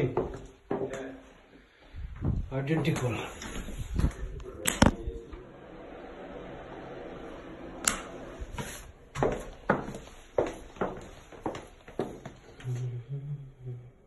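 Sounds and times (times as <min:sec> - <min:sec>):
footsteps on hard floor: 0:00.0 - 0:01.1, 0:01.8 - 0:04.2, 0:08.4 - 0:12.6.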